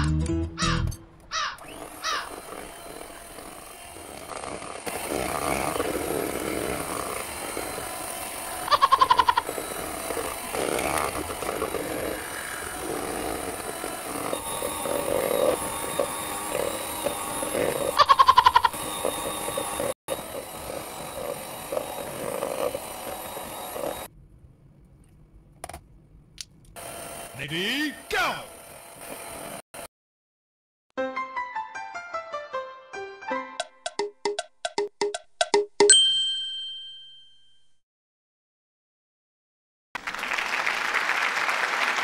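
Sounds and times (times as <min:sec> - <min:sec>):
pulsing animal call: 0:00.6 - 0:24.1
electric mixer churning batter: 0:01.6 - 0:24.1, 0:26.8 - 0:29.9.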